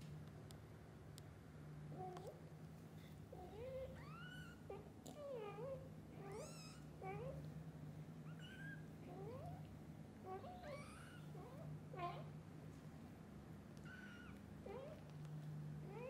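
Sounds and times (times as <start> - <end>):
low steady hum: 0.0 - 16.0
kittens mewing: 3.3 - 7.4, 13.8 - 15.1.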